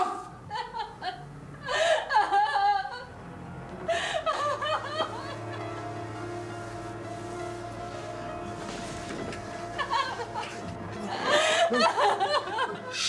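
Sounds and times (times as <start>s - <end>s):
woman sobbing: 0.0s - 3.1s, 3.9s - 5.6s, 9.8s - 13.0s
low sustained music chord: 2.9s - 13.0s.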